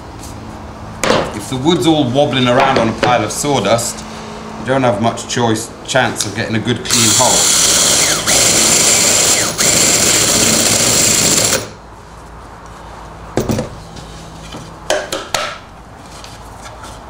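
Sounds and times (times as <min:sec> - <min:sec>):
cordless drill boring through wood: 0:06.9 - 0:11.7.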